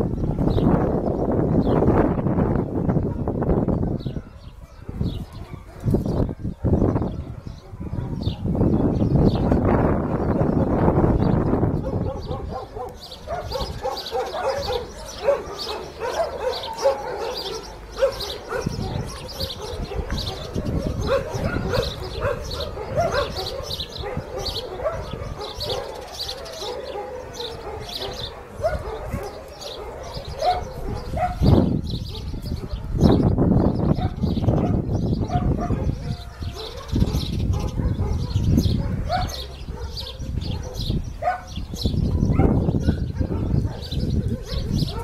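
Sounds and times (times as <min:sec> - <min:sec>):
puppies yipping and barking: 0:11.5 - 0:45.0.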